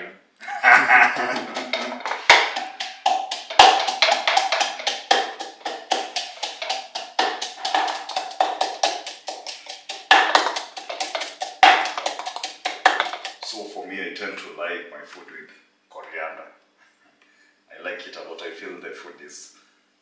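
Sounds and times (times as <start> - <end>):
pestle pounding in a mortar: 0.9 - 13.5.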